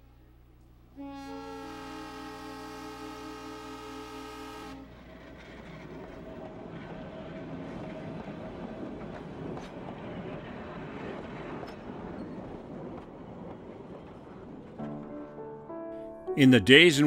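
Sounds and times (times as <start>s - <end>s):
train horn chord: 0.9s - 5.0s
train rumbling on rails: 1.4s - 15.4s.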